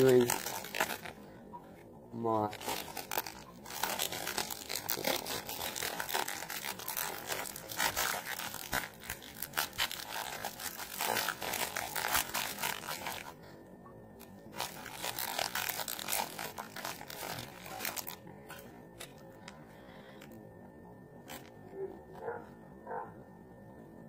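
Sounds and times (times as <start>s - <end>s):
food wrapper crackling: 0.0s - 1.2s, 2.2s - 13.4s, 14.4s - 18.2s.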